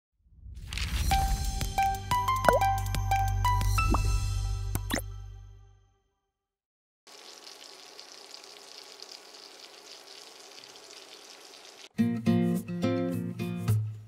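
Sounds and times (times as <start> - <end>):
fish sizzling in hot oil: 7.1 - 11.9
acoustic guitar music: 11.9 - 14.0.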